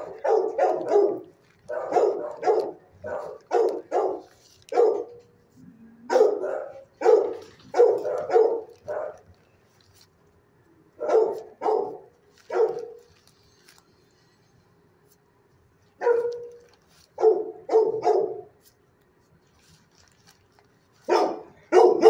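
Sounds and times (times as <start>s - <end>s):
dog barking: 0.0s - 5.2s, 6.1s - 9.3s, 11.0s - 13.1s, 16.0s - 16.6s, 17.2s - 18.5s, 21.0s - 22.0s.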